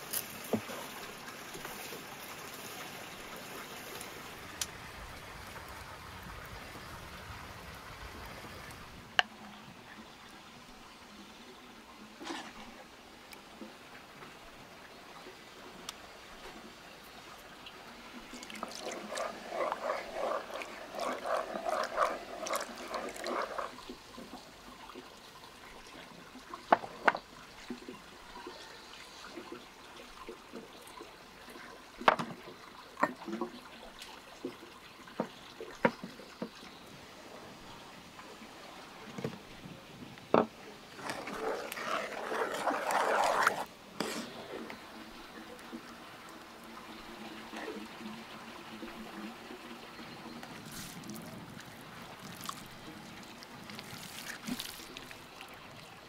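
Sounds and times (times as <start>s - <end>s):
wet sauce mixing and sloshing: 18.3s - 24.3s, 40.9s - 44.5s, 50.6s - 55.9s.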